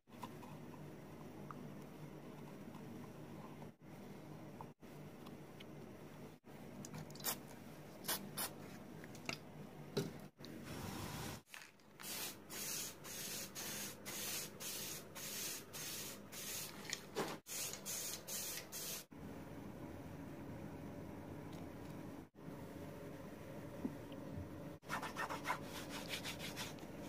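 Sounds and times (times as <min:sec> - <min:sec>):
spray can hissing bursts: 0:12.0 - 0:16.8, 0:17.5 - 0:19.1.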